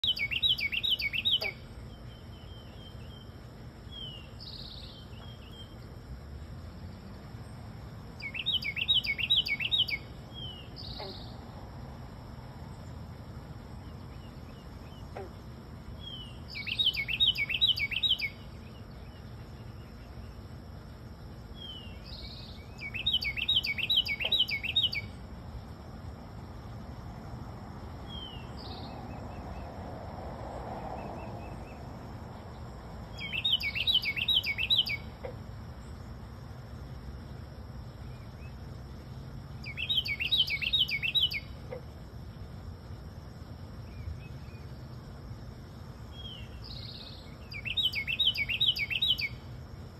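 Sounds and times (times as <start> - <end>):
bird call notes: 0.0 - 3.2, 8.2 - 11.3, 16.0 - 18.5, 21.6 - 25.1, 33.1 - 35.4, 39.6 - 41.8, 46.2 - 49.4
songbird singing: 0.0 - 49.9.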